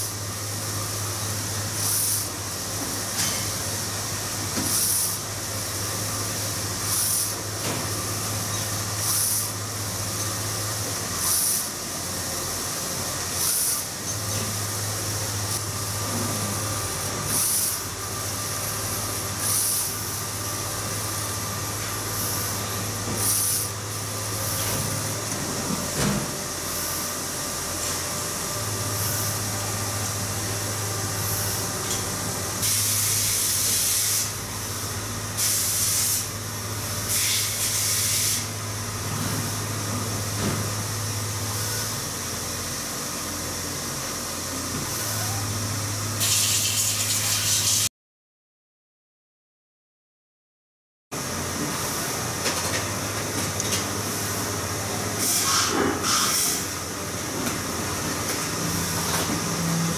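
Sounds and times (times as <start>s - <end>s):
printer hiss bursts: 1.7s - 2.3s, 4.6s - 5.2s, 6.8s - 7.4s, 8.9s - 9.6s, 11.2s - 11.7s, 13.3s - 13.9s, 17.3s - 17.9s, 19.4s - 20.2s, 23.2s - 23.8s, 37.1s - 38.5s, 46.2s - 47.9s, 55.2s - 56.8s.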